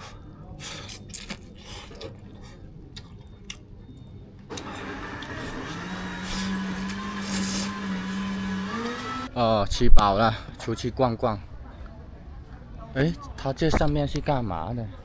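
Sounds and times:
engine hum: 4.5 - 9.3.

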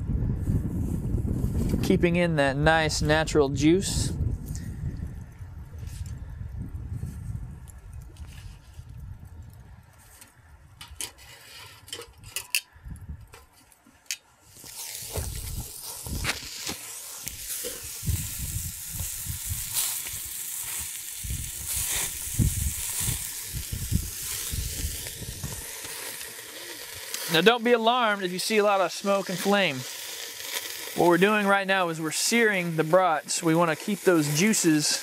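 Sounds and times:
sausages sizzling on grill: 14.5 - 35.0.

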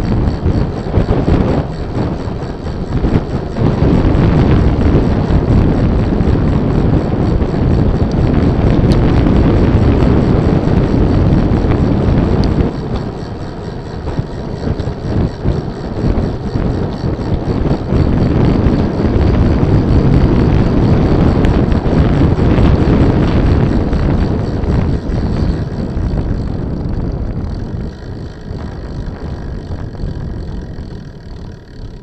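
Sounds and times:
road noise: 0.0 - 32.0
wind buffeting microphone: 0.0 - 32.0.

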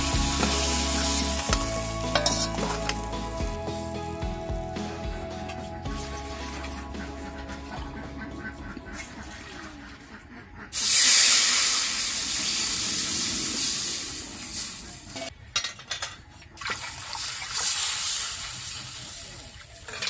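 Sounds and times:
water splashing into wok: 0.0 - 3.6, 10.8 - 15.1
liquid sizzling in hot oil: 0.0 - 3.9, 10.8 - 15.3, 16.8 - 19.9.

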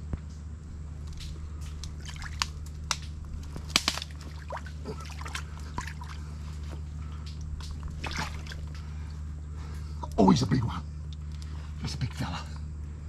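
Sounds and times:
sharp wet clicks: 1.0 - 6.2, 7.2 - 8.9
wet mud squelching: 1.0 - 9.1
water dripping and sloshing: 1.0 - 9.2.

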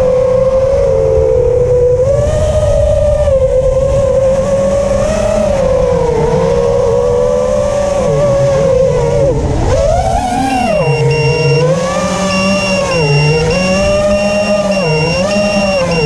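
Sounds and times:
drone motors whining: 3.4 - 16.0.

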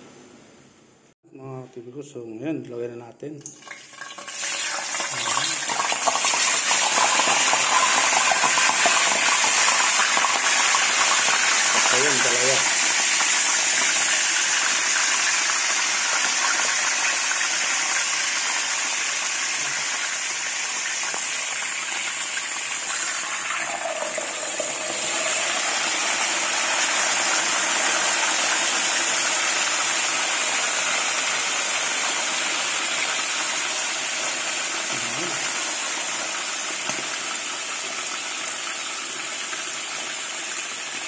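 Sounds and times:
fish frying in oil: 3.5 - 41.0.

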